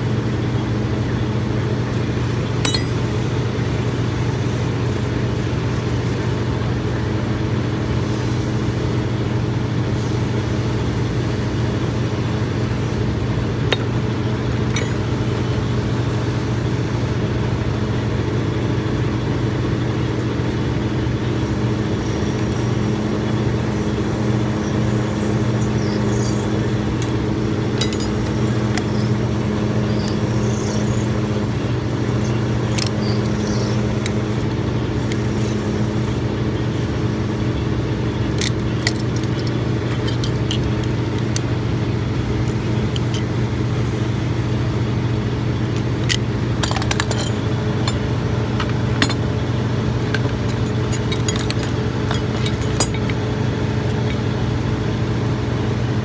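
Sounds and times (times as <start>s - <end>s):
metal hand tools clinking: 2.6s - 3.2s, 14.7s - 15.1s, 26.9s - 29.3s, 38.4s - 40.9s, 46.0s - 54.3s
motor humming: 19.7s - 56.0s.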